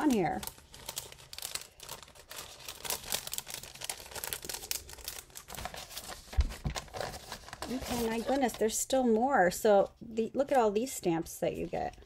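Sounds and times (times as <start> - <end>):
cellophane crinkling and rustling: 0.0 - 9.2.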